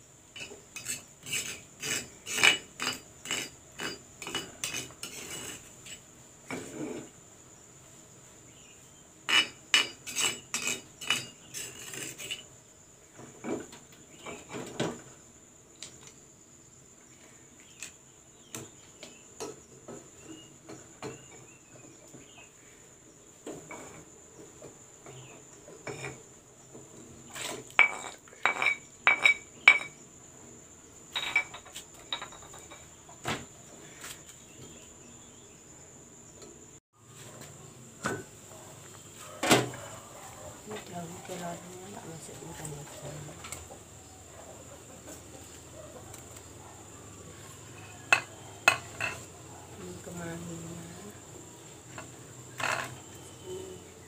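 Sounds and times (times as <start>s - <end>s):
spoon scraping metal pot: 0.4s - 6.0s, 9.3s - 12.5s.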